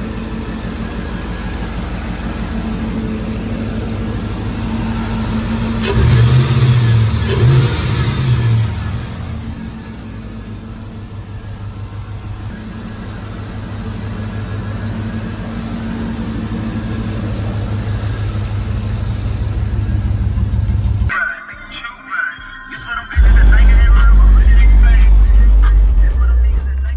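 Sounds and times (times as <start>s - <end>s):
car engine revving and idling: 0.0s - 21.1s, 22.8s - 26.9s.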